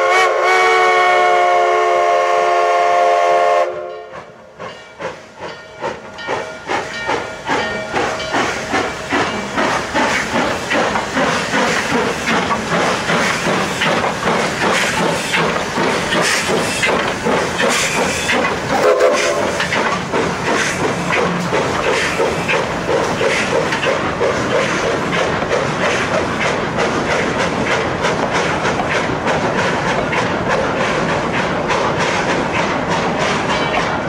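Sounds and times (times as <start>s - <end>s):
steam locomotive whistle: 0.0s - 4.5s, 17.8s - 19.6s
steam hissing: 0.0s - 34.0s
steam locomotive exhaust chuffs: 0.0s - 34.0s.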